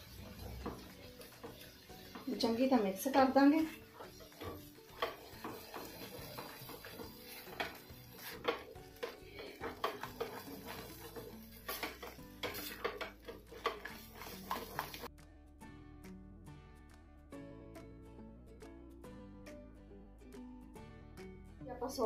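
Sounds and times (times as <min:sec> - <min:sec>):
spatula scraping a pan: 0:00.0 - 0:15.1
background music: 0:00.0 - 0:22.0.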